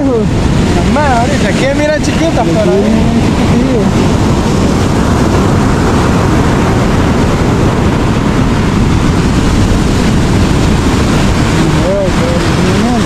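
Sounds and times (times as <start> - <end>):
ocean surf breaking: 0.0 - 13.0
wind rumble on microphone: 0.0 - 13.0.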